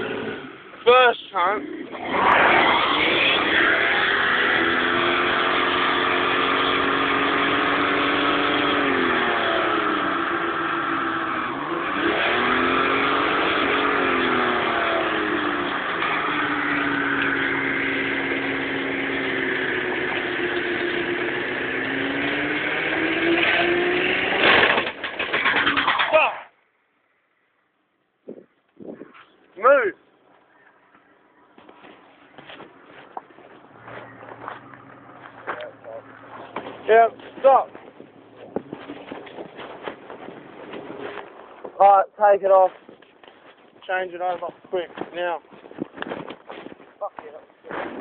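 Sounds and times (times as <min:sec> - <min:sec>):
car engine at high revs: 0:00.0 - 0:00.8, 0:01.4 - 0:26.0, 0:32.5 - 0:41.2
tyres spinning on road: 0:00.0 - 0:26.3, 0:32.3 - 0:41.8.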